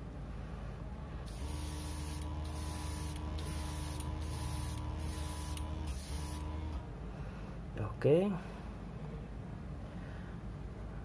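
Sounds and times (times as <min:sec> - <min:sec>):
steady low hum: 0:00.0 - 0:11.0
airbrush hissing: 0:01.3 - 0:06.5.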